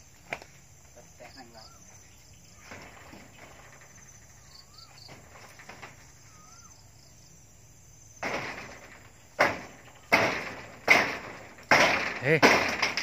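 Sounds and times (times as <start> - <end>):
gecko calling: 1.2 - 5.2, 6.0 - 7.2.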